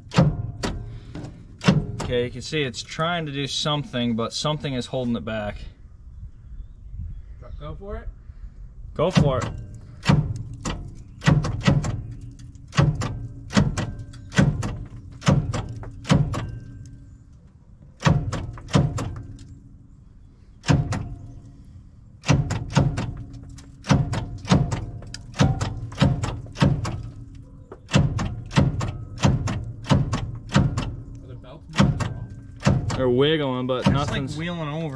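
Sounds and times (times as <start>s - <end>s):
starter motor heavy clunks: 0.0s - 2.4s, 9.1s - 16.8s, 18.0s - 19.4s, 20.6s - 21.3s, 22.2s - 34.5s.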